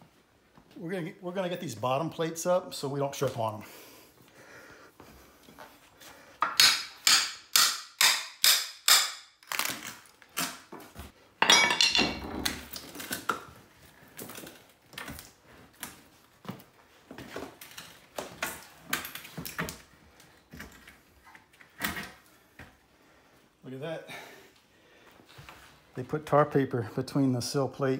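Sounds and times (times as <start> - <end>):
wood clattering and knocks: 10.8 - 12.8.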